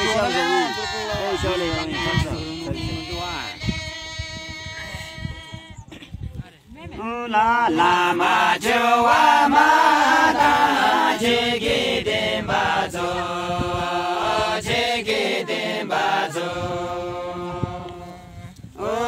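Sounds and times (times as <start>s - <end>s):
group singing slow chant: 0.0s - 5.2s, 7.3s - 19.0s.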